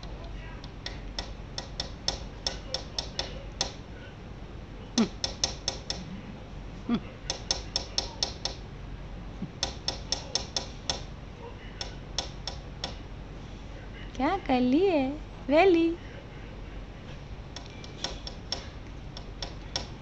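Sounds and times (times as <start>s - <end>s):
parrot clicking: 0.0s - 3.8s, 5.0s - 6.1s, 7.3s - 8.6s, 9.6s - 11.1s, 11.8s - 13.0s, 17.5s - 20.0s.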